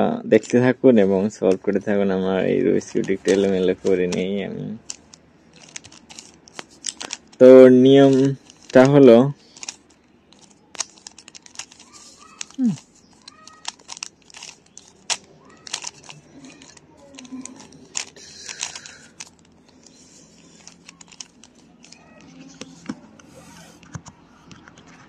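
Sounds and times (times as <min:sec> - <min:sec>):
puzzle cube clicking as twisted: 0:02.9 - 0:07.4, 0:08.0 - 0:22.7.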